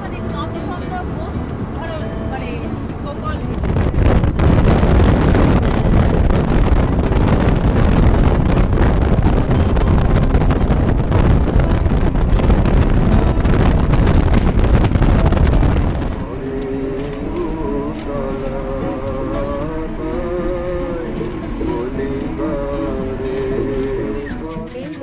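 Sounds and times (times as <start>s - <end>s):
car road noise: 0.0s - 25.0s
wind buffeting microphone: 0.0s - 25.0s.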